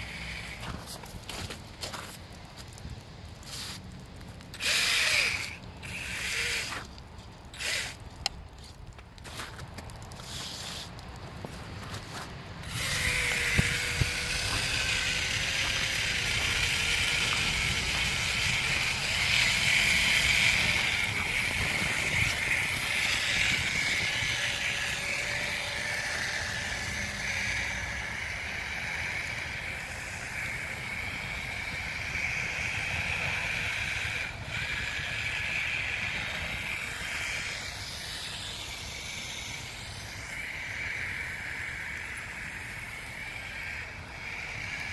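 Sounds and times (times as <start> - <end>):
rc truck motor and gear whine: 0.0 - 44.9
hiss of skis on snow: 3.4 - 3.8, 10.2 - 10.9.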